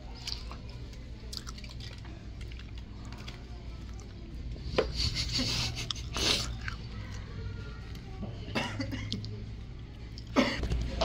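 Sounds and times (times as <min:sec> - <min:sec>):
wet chewing and lip-smacking: 0:00.1 - 0:04.2, 0:05.8 - 0:07.2.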